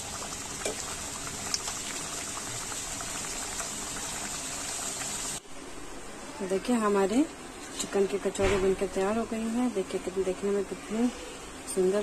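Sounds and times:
food sizzling in hot oil: 0:00.0 - 0:05.4.

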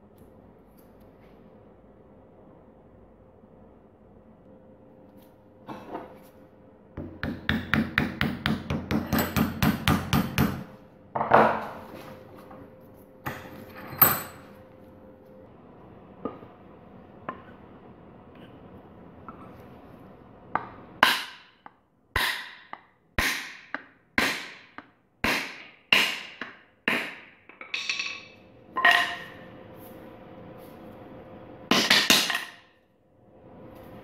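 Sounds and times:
hammer striking wood with ring: 0:07.0 - 0:10.7, 0:20.6 - 0:27.3.

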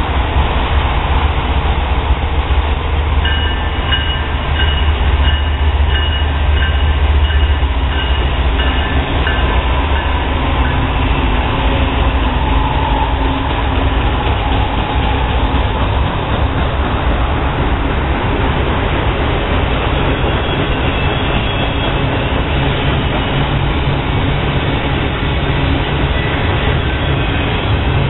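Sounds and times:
freight train rumbling past: 0:00.0 - 0:28.0
locomotive bell ringing: 0:03.2 - 0:11.0.

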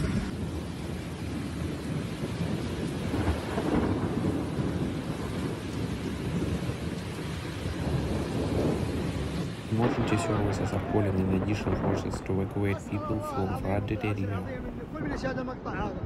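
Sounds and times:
heavy rain: 0:00.0 - 0:16.0
steady low rumble: 0:09.7 - 0:15.0.

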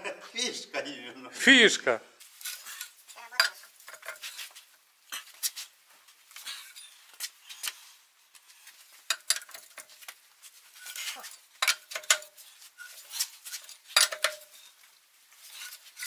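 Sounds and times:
lug wrench clinking on wheel nuts: 0:09.1 - 0:10.0, 0:11.6 - 0:13.0, 0:13.6 - 0:14.8.

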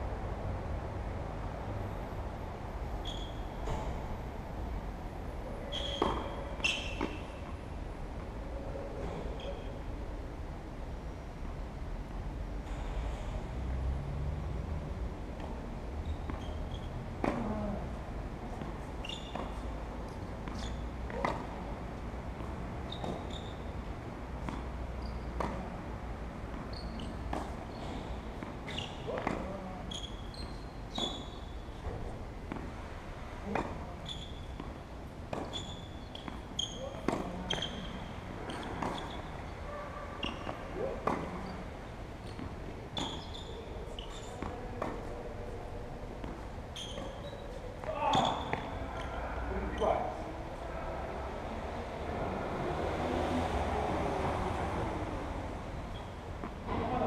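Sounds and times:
tennis ball bouncing: 0:05.7 - 0:07.6, 0:15.4 - 0:17.5, 0:18.5 - 0:32.8, 0:33.4 - 0:39.6, 0:40.2 - 0:49.1, 0:55.9 - 0:56.7.

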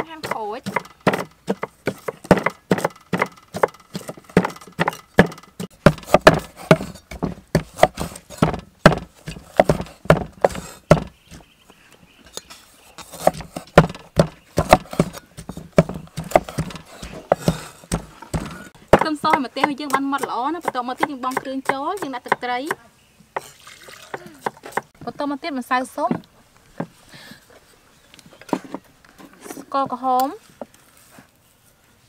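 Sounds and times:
cleaver chopping on wooden block: 0:00.0 - 0:11.4, 0:13.0 - 0:22.8.

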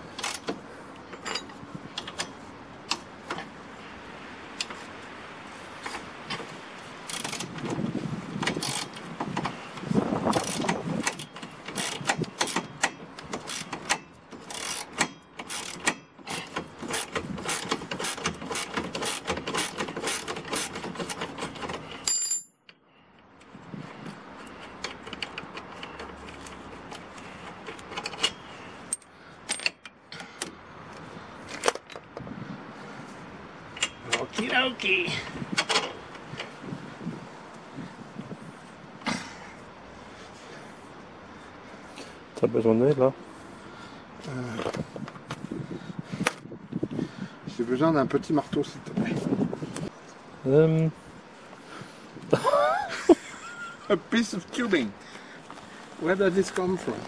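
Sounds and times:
socket ratchet clicking: 0:10.3 - 0:21.2.

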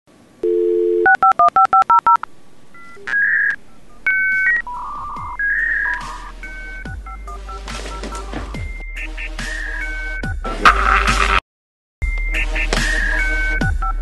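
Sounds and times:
touch-tone dialing beeps: 0:00.4 - 0:08.3
modem handshake whistles and screeches: 0:02.8 - 0:06.6, 0:07.9 - 0:11.4.

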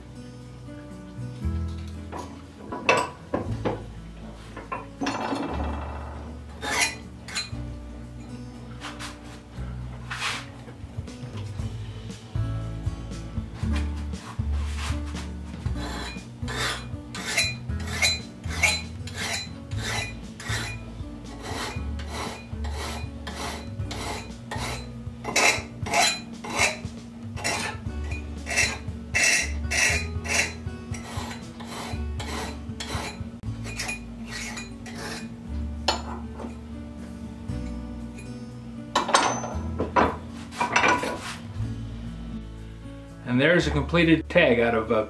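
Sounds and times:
background music: 0:00.0 - 0:45.0
hand file rasping on steel: 0:06.6 - 0:07.5, 0:14.1 - 0:35.3.

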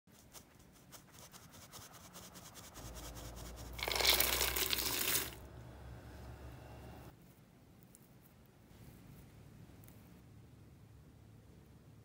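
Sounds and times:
nuts rattling into metal bowl: 0:03.8 - 0:05.4.

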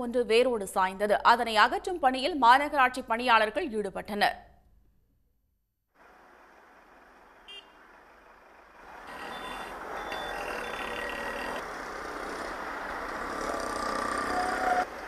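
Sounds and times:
street and vehicle noise: 0:06.0 - 0:15.0
vehicle reversing beeps: 0:09.1 - 0:11.6, 0:14.2 - 0:14.8
short beep: 0:09.2 - 0:11.0.

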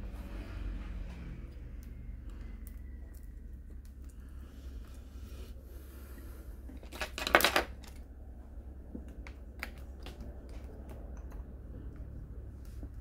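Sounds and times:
low steady hum: 0:00.0 - 0:13.0
battery pack clattering on laptop: 0:06.8 - 0:08.0.

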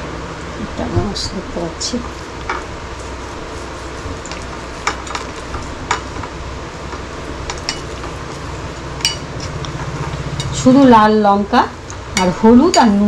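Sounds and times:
hand rubbing fish: 0:02.1 - 0:08.8.

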